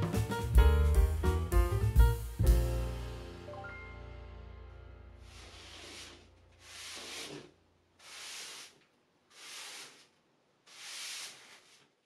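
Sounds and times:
broom sweeping concrete floor: 0:05.2 - 0:12.0.

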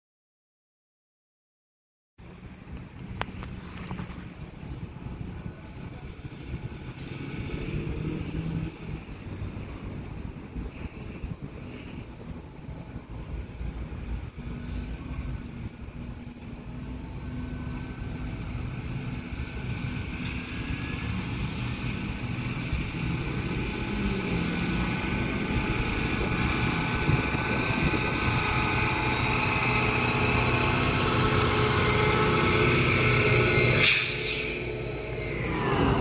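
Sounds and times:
engine and wheel rumble: 0:02.2 - 0:36.0
high-pitched whine: 0:17.1 - 0:36.0.

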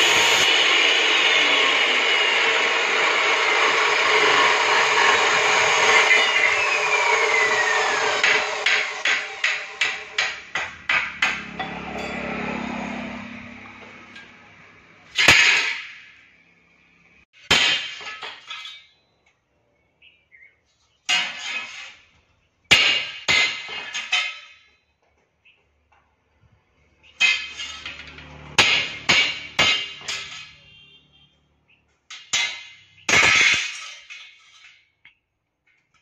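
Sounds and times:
hammer clanging on steel: 0:08.1 - 0:12.7, 0:27.2 - 0:30.7, 0:32.1 - 0:34.8.

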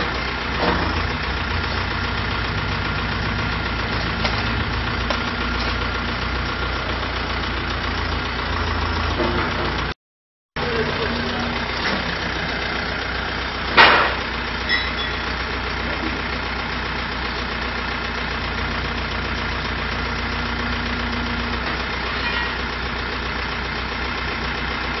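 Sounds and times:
loader knocks: 0:00.0 - 0:01.3, 0:09.0 - 0:09.9, 0:13.5 - 0:16.3
tractor engine running: 0:00.0 - 0:10.0, 0:10.6 - 0:25.0.

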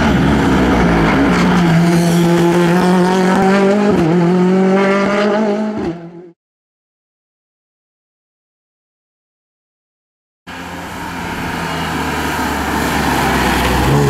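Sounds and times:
rally car engine revving high: 0:00.0 - 0:06.4, 0:10.5 - 0:14.0.

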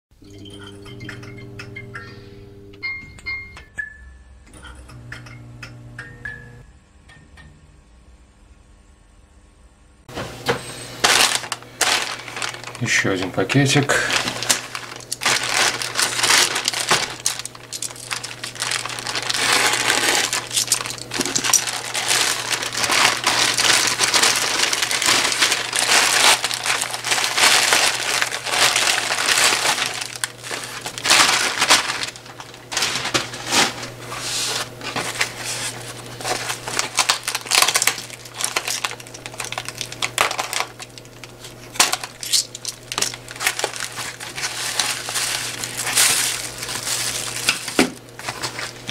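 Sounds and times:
plastic packaging crinkling: 0:11.0 - 0:48.9.

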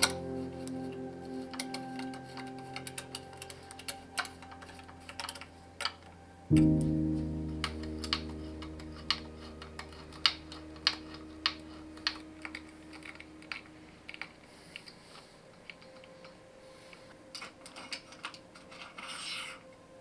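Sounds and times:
sustained guitar chord: 0:00.0 - 0:05.1, 0:06.4 - 0:12.4.

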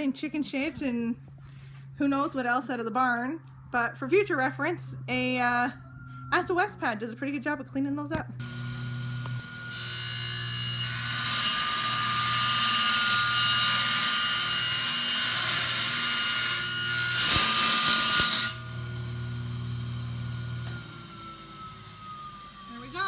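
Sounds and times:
tool cutting metal: 0:08.4 - 0:22.7
power tool whining: 0:08.4 - 0:23.0.

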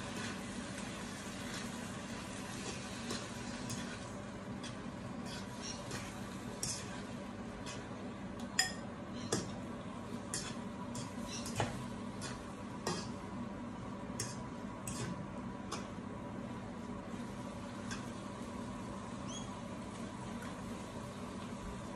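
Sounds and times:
steady low hum: 0:00.0 - 0:21.9
fork scraping frying pan: 0:02.6 - 0:07.9, 0:10.3 - 0:11.6.

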